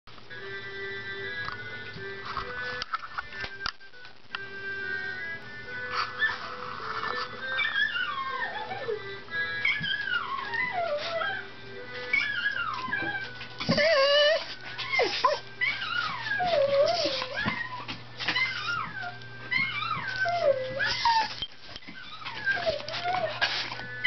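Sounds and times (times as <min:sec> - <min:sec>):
background music: 0:00.1 - 0:21.4
dog howling and whining: 0:05.9 - 0:24.0.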